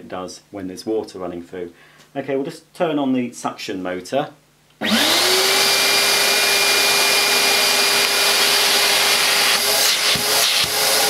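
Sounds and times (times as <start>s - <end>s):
vacuum cleaner motor running: 4.8s - 11.0s
hose wand knocks: 10.0s - 10.8s.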